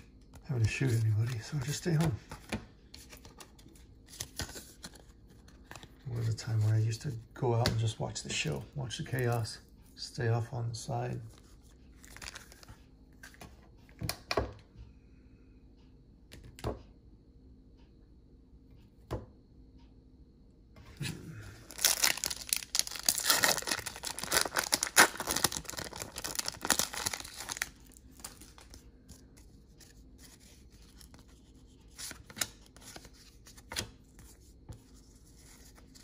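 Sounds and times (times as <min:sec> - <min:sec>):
cards being handled: 0:00.3 - 0:06.9
wrapper tearing and crinkling: 0:21.6 - 0:28.7.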